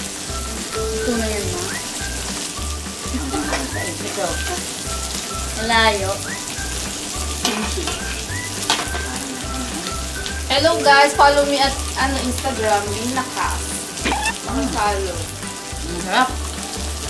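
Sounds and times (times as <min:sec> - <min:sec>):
meat sizzling on a grill pan: 0:00.0 - 0:17.0
background music with bass beat: 0:14.0 - 0:17.0.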